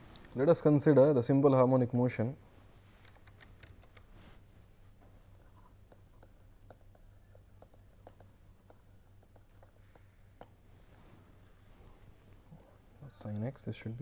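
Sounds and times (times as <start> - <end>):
low steady hum: 0.0 - 14.0
stylus tapping on pen tablet: 5.8 - 10.6.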